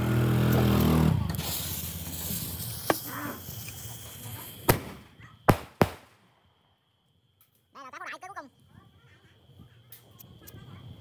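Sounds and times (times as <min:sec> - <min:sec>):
firework fuse hissing: 0:00.6 - 0:06.3
firework tube firing crack: 0:00.7 - 0:06.4.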